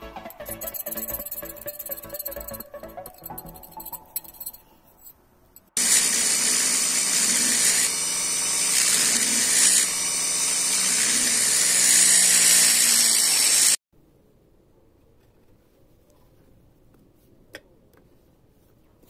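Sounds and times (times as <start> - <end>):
rotary tool grinding metal: 0.4 - 5.1, 5.7 - 13.8.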